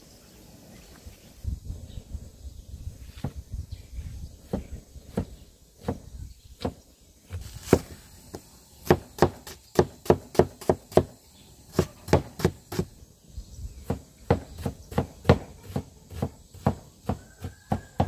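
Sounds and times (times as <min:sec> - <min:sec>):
knife chopping on wooden board: 0:04.5 - 0:08.0, 0:08.8 - 0:12.9, 0:13.8 - 0:18.0.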